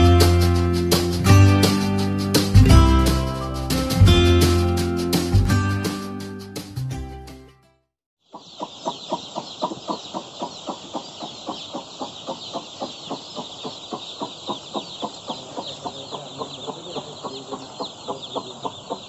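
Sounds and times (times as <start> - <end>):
chicks peeping: 8.2 - 19.0.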